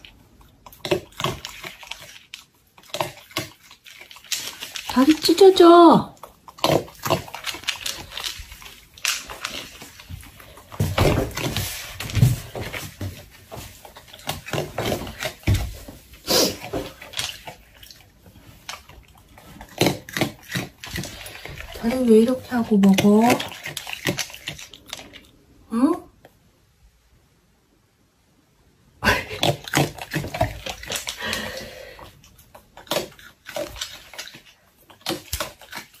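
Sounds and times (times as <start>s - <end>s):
raccoon smacking and lapping: 0.0s - 25.5s, 29.1s - 36.0s
plastic cup crinkling: 6.2s - 25.2s.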